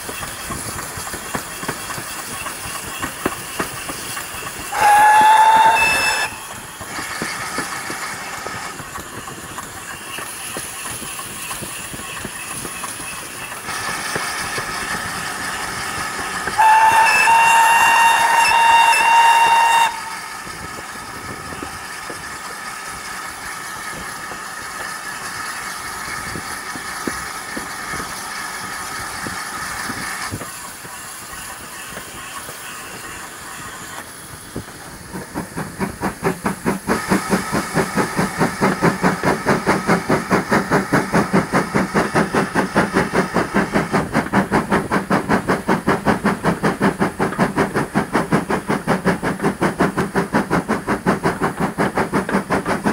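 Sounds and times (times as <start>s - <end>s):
train running over rails: 0.0s - 52.9s
steam whistle blasts: 4.7s - 6.5s, 16.6s - 20.3s.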